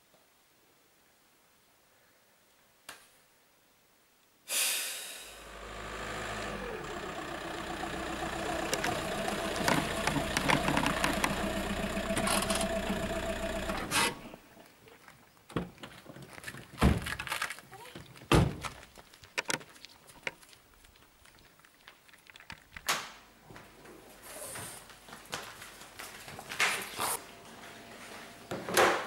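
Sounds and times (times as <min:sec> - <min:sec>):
car engine running: 0:05.3 - 0:14.4.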